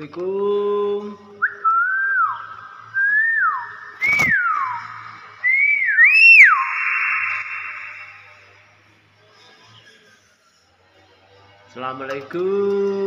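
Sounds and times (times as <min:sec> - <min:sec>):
bird whistling: 0:01.4 - 0:08.6
sharp click: 0:04.0 - 0:04.4.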